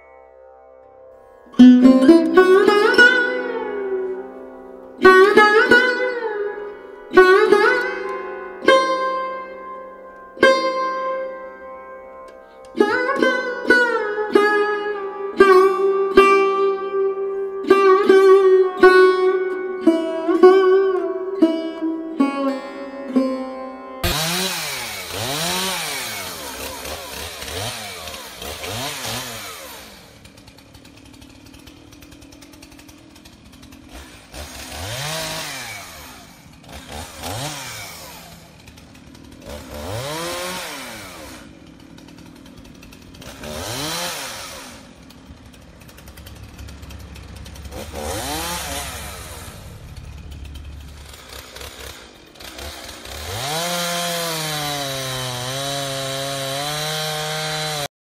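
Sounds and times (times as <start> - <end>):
chainsaw revving: 1.2 - 57.9.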